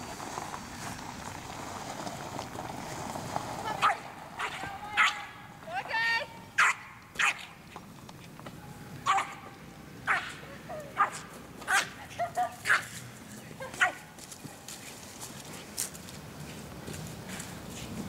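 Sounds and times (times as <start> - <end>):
dog barking: 3.8 - 5.2, 6.6 - 7.5, 9.1 - 9.4, 10.1 - 10.4, 11.0 - 12.0, 12.6 - 13.0, 13.8 - 14.0.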